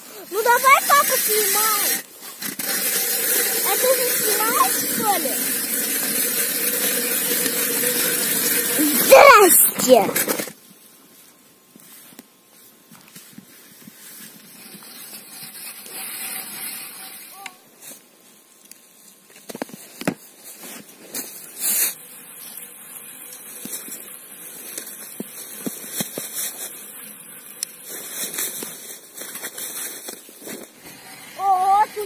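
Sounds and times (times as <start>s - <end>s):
ice auger drilling through ice: 0.0s - 10.6s, 14.2s - 17.6s, 20.4s - 32.0s.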